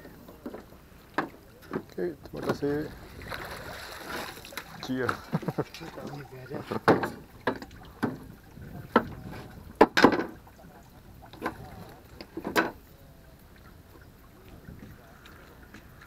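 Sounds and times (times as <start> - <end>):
net frame knocking wooden boards: 6.8 - 8.2, 9.8 - 10.4.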